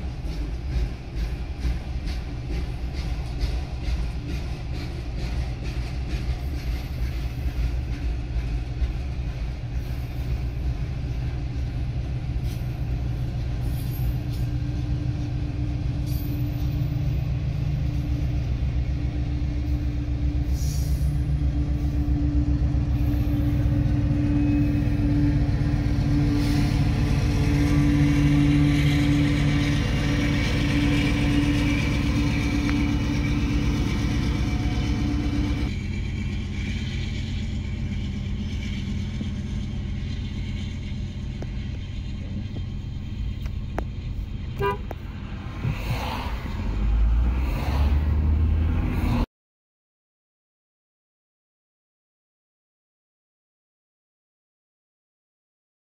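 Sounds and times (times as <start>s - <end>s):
passing freight train rumble: 0.0s - 49.3s
car engine and road noise: 8.2s - 49.3s.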